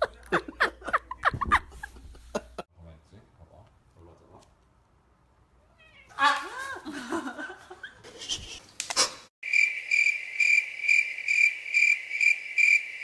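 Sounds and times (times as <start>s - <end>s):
crickets chirping: 9.4s - 13.0s.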